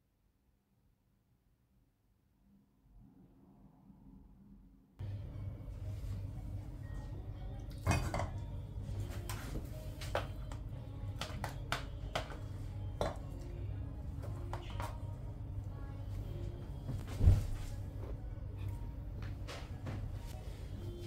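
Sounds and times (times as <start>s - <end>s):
steady low hum: 2.8s - 21.0s.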